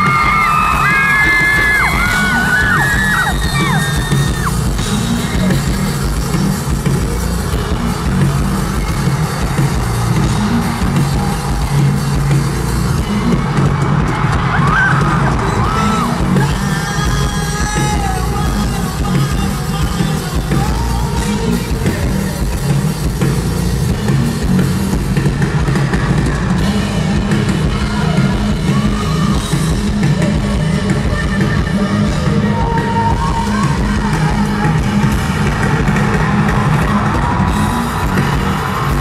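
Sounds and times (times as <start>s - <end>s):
live rock band playing: 0.0s - 39.0s
woman singing: 26.6s - 35.8s.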